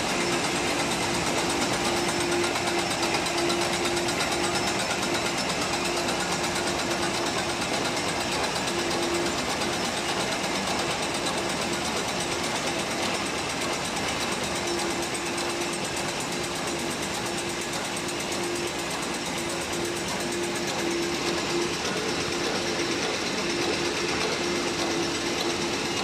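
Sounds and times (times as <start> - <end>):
packing machine clatter: 0.0 - 26.0
machine hum: 11.4 - 26.0.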